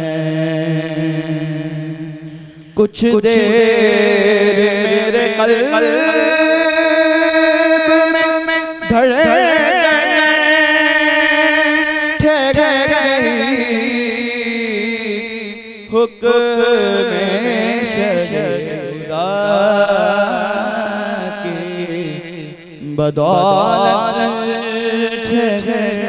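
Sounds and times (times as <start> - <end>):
man singing unaccompanied: 0.0 - 2.2, 2.8 - 26.0.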